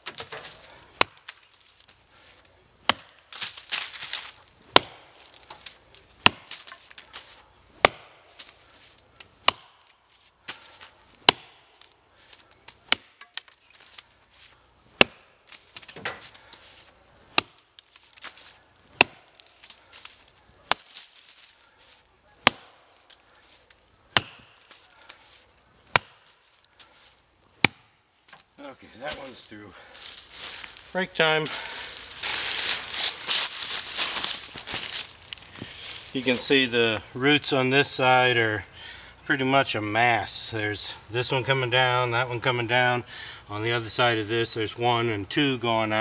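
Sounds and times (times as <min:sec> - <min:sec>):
axe chopping into root: 0:01.0 - 0:01.4, 0:02.9 - 0:03.2, 0:04.1 - 0:05.1, 0:06.2 - 0:07.0, 0:07.8 - 0:08.5, 0:09.4 - 0:09.9, 0:11.2 - 0:11.6, 0:12.9 - 0:13.5, 0:15.0 - 0:16.2, 0:17.4 - 0:18.4, 0:19.0 - 0:19.8, 0:20.7 - 0:21.1, 0:22.4 - 0:22.8, 0:24.1 - 0:24.8, 0:25.9 - 0:26.3, 0:27.6 - 0:28.0.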